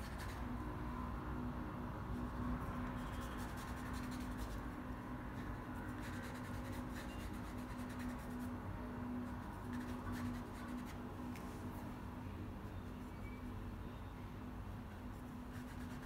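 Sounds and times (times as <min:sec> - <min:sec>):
paintbrush scratching on paper: 0:00.0 - 0:00.6, 0:02.1 - 0:08.6, 0:09.2 - 0:11.0, 0:15.1 - 0:16.0.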